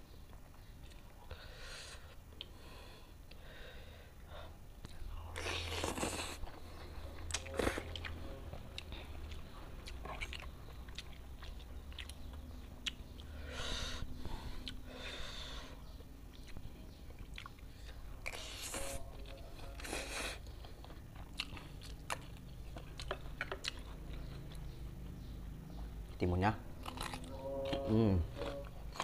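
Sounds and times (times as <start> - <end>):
chewing: 4.8 - 13.4, 15.9 - 29.0.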